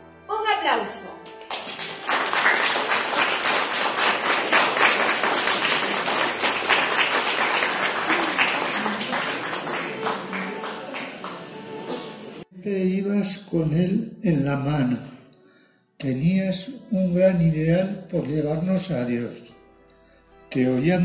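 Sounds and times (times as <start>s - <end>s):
audience applauding: 1.2s - 12.5s.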